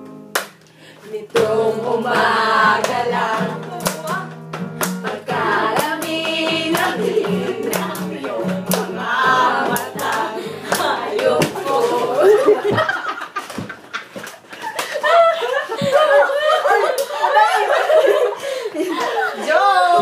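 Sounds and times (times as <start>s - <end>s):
hand claps: 0.3s - 0.7s, 2.8s - 3.0s, 3.6s - 11.9s, 13.4s - 15.0s
women singing together: 1.0s - 4.4s, 5.0s - 13.2s, 15.1s - 20.0s
strummed acoustic guitar: 1.3s - 12.9s
low held vocal line: 5.2s - 12.6s.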